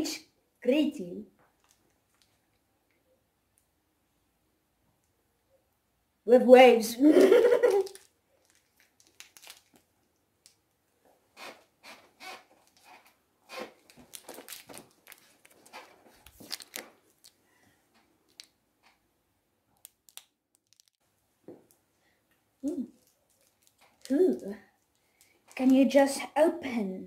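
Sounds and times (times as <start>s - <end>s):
candy wrapper crinkling: 1.6s - 2.6s, 7.5s - 10.7s, 13.8s - 17.5s, 18.2s - 18.6s, 19.7s - 21.0s, 22.6s - 25.9s.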